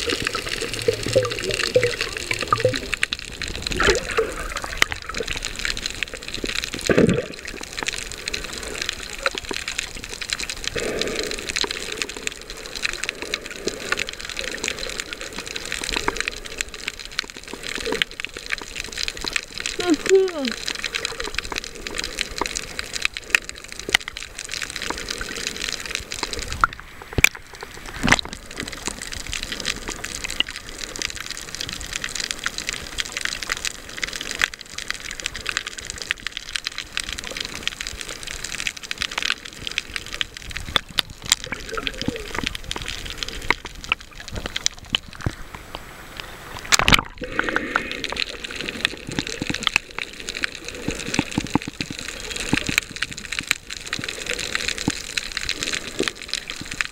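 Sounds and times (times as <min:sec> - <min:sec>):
crackle of small clicks: 0:00.0 - 0:56.9
underwater hiss: 0:10.5 - 0:18.0, 0:45.2 - 0:53.0.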